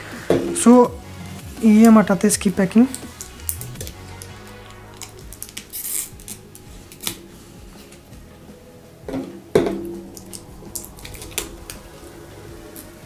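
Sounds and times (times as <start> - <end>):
packaging crinkling: 2.8 - 8.0, 10.1 - 11.9.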